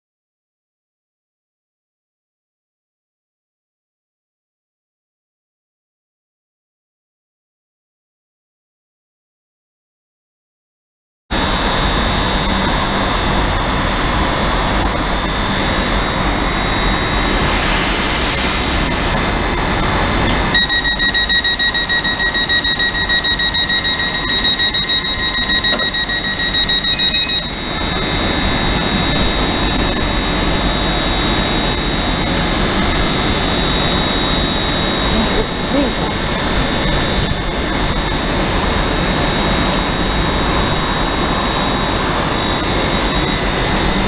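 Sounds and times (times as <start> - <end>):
train engine noise: 11.4 - 44.0
train high-pitched whine: 11.4 - 44.0
rapid beeping: 20.3 - 37.0.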